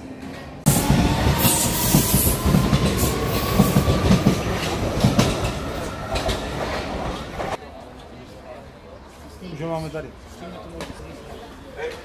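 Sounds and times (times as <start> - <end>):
train rushing past: 0.6 - 7.6.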